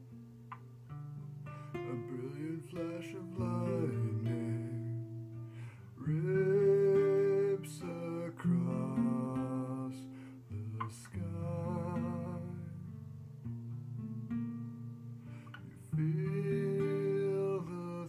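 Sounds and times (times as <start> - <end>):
acoustic guitar chords: 0.0 - 18.0
man singing wordless notes: 1.8 - 5.1, 6.0 - 12.9, 15.8 - 18.0.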